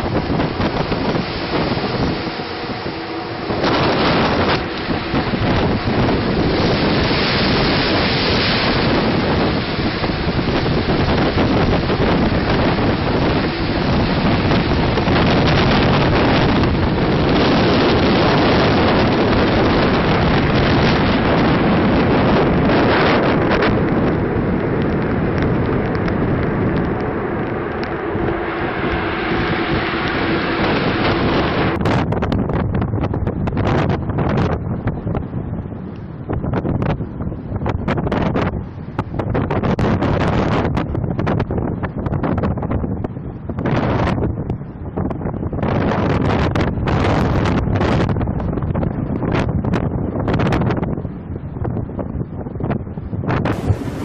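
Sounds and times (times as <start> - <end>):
waves breaking: 0.0 - 32.4, 53.3 - 54.0
water rushing across deck: 0.0 - 52.1, 52.9 - 54.0
wind buffeting microphone: 0.0 - 54.0.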